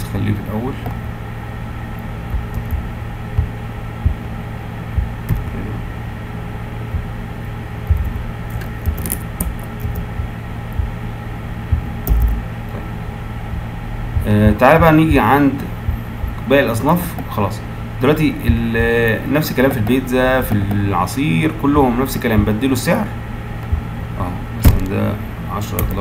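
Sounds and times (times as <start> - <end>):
steady low hum: 0.0 - 26.0
keyboard and mouse clicks: 2.3 - 2.8, 5.0 - 5.6, 7.8 - 10.9, 11.7 - 12.4.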